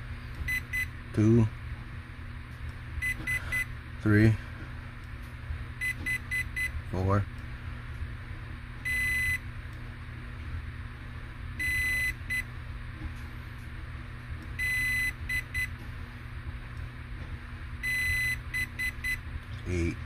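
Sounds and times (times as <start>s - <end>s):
electronic long and short beeps: 8.9s - 9.4s, 11.6s - 12.4s, 14.6s - 15.7s, 17.8s - 19.2s.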